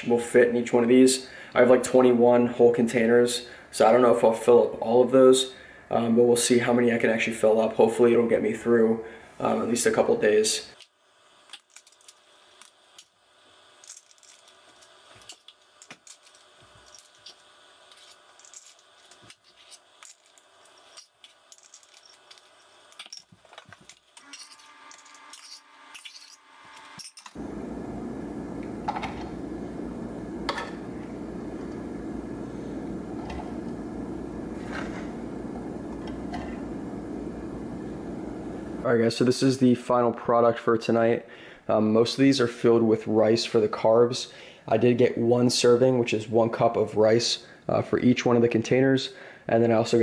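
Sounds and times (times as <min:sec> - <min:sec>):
steady hum: 0:09.0 - 0:39.0.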